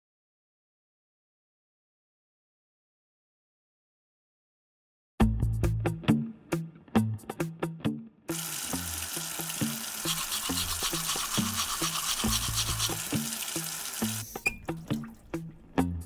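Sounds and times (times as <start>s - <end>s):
music with plucked bass: 5.2s - 8.1s, 14.0s - 16.0s
rhythmic brushing strokes: 9.1s - 14.4s.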